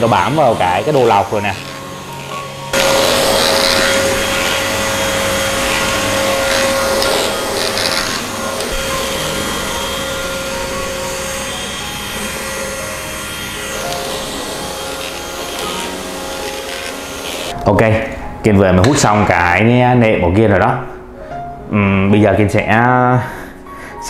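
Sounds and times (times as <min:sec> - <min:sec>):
vacuum cleaner motor whine: 0:00.0 - 0:17.6.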